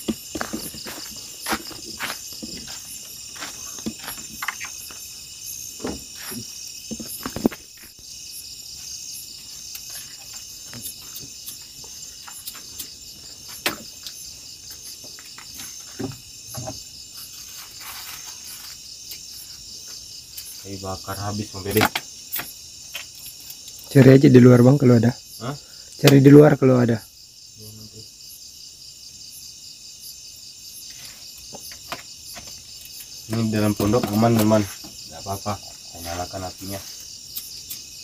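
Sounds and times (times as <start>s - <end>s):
footsteps: 0.0s - 5.1s
crickets and insects chirping: 0.0s - 38.0s.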